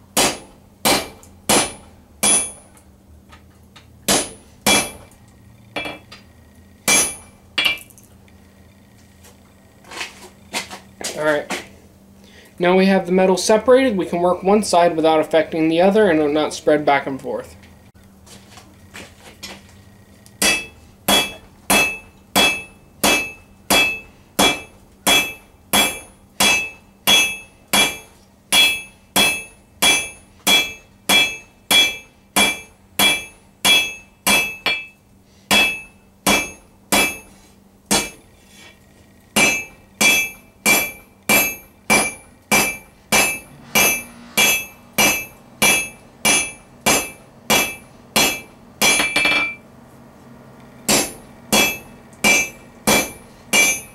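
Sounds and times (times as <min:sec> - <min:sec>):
hammer ringing on anvil: 0:00.2 - 0:02.7, 0:04.1 - 0:05.1, 0:05.8 - 0:06.0, 0:06.9 - 0:07.9, 0:20.4 - 0:37.3, 0:37.9 - 0:38.2, 0:39.4 - 0:49.6, 0:50.9 - 0:53.9.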